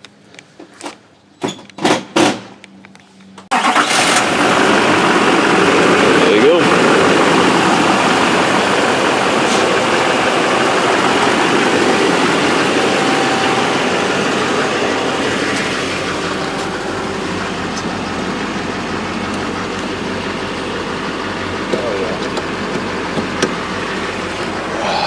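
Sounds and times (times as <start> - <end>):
diesel engine idling: 3.5 - 25.0.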